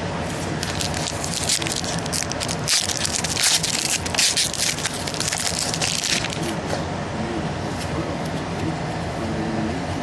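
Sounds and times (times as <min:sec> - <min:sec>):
plastic foil wrapper crinkling: 0:00.6 - 0:06.6.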